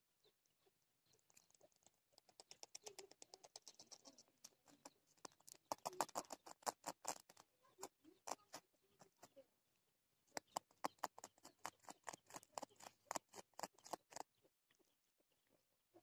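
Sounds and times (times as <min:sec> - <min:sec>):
rat clicking and scratching: 0:01.0 - 0:09.4, 0:10.3 - 0:14.3.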